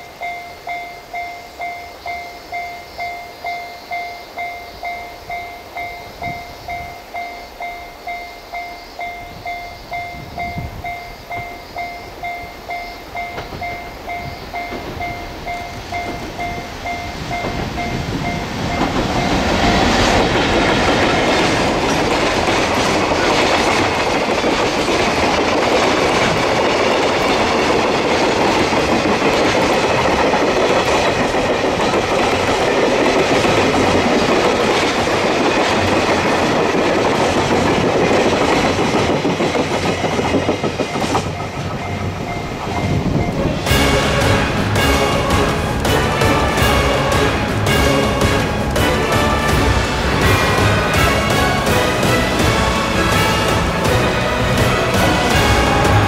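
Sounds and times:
wheels clicking over rail joints: 0.0 - 44.3
freight train passing: 0.0 - 56.0.

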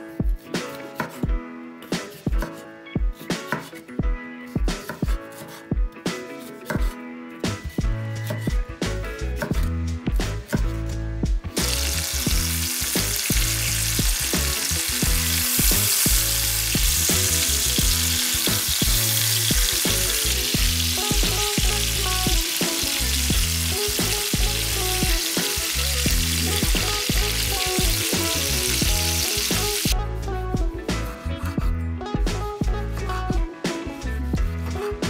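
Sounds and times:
background music: 0.0 - 35.0
chicken sizzling in frying pan: 11.6 - 30.0.

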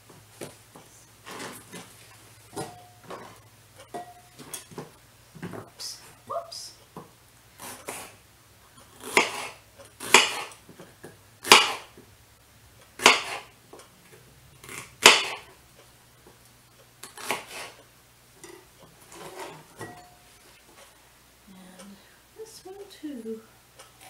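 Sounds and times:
dishes and utensils clattering: 2.5 - 4.9, 18.4 - 20.8.

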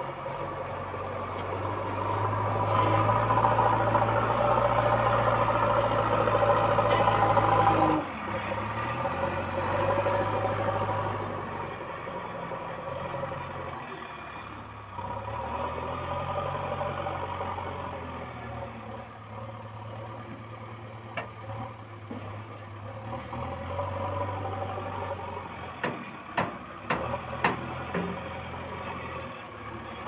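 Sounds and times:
diesel engine under load: 0.0 - 30.0
sharp metallic knocks: 25.8 - 28.3.

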